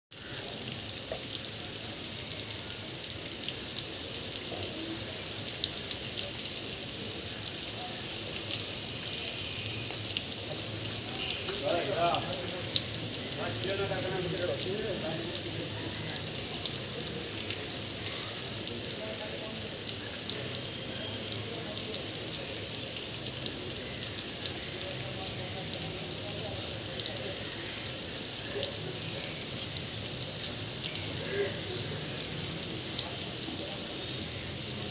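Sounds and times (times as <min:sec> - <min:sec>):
steady rain: 0:00.1 - 0:34.9
drops ticking: 0:11.1 - 0:17.6.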